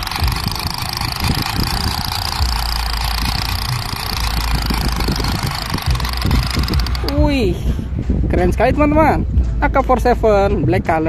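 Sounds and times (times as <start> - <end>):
low buffeting thumps: 0.0 - 11.0
wind rumbling on microphone: 0.0 - 11.0.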